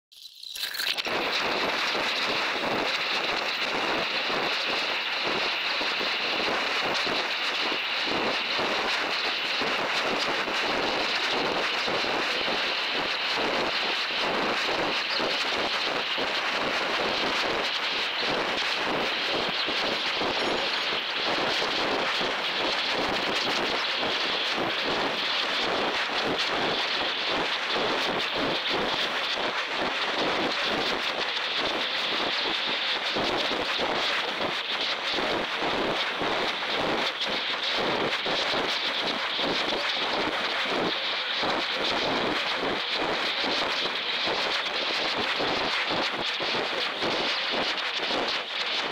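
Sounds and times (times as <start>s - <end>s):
wind rushing on microphone: 0.9s - 48.9s.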